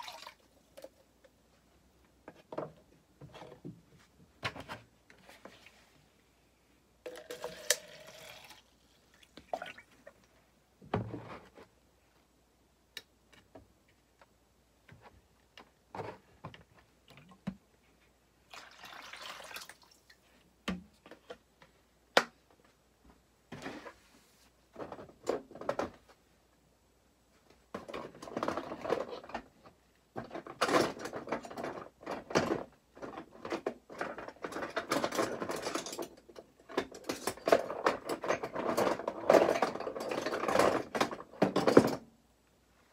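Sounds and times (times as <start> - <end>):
liquid pouring from plastic jug: 7.1 - 10.0, 18.5 - 20.0
rubbing and rustling: 23.5 - 26.4.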